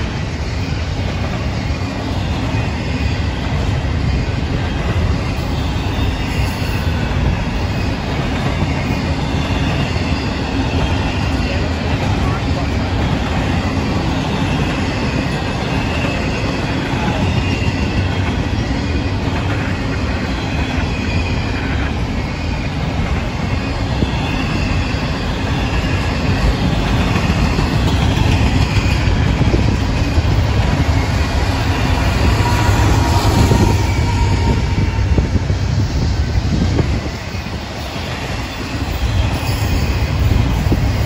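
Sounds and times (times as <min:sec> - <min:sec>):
train rumbling and clattering: 0:00.0 - 0:41.0
high wheel squeals: 0:20.1 - 0:36.0, 0:36.8 - 0:41.0.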